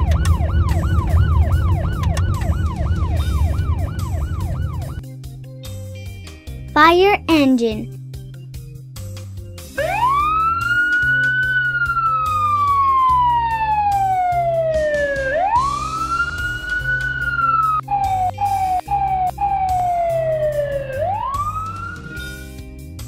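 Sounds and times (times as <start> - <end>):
fire engine siren wailing: 0.0 - 5.0, 9.8 - 22.5
background music: 6.7 - 7.9.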